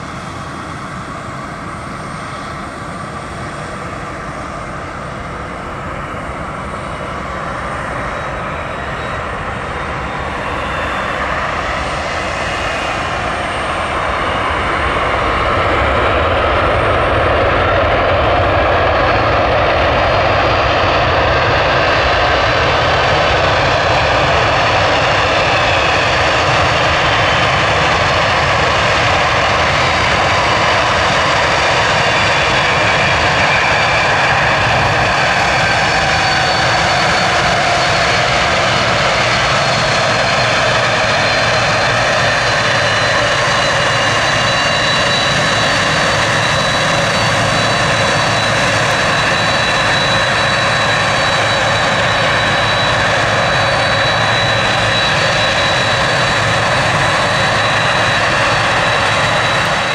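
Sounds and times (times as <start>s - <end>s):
jet engines running: 0.0s - 59.9s.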